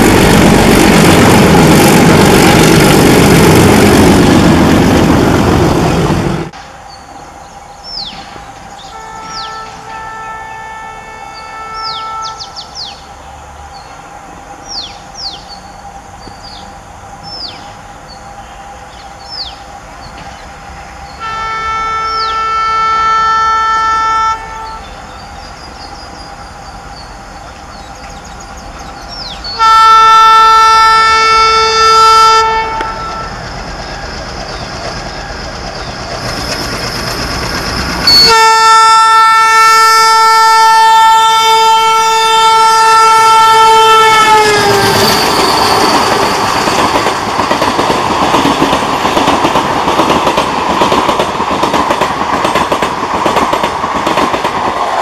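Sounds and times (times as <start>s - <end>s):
train running noise: 0.0s - 55.0s
locomotive horn blasts: 8.9s - 12.5s, 21.2s - 24.9s, 29.6s - 33.4s, 38.0s - 45.8s.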